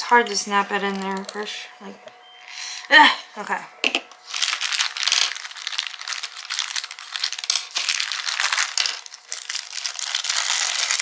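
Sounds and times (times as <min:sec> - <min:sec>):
plastic bag crinkling: 0:04.2 - 0:11.0.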